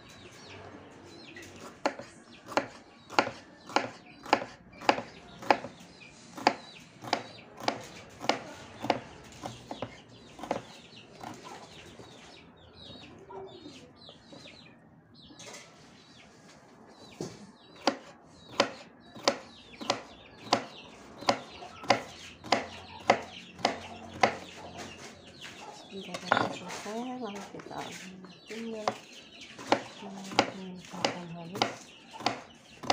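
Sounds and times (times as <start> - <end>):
knife chopping on wooden board: 1.8 - 5.8, 6.4 - 11.6, 17.8 - 25.0, 26.1 - 26.9, 28.8 - 32.9.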